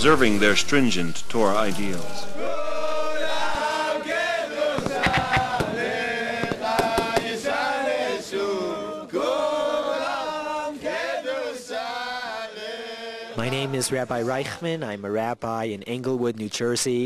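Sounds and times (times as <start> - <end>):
men singing a chant: 1.4 - 14.6
sharp knocks or claps: 4.8 - 7.4.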